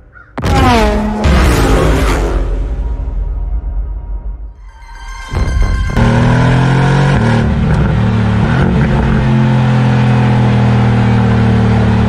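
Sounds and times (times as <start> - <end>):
sports car engine droning: 0.1 - 2.8, 5.3 - 12.0.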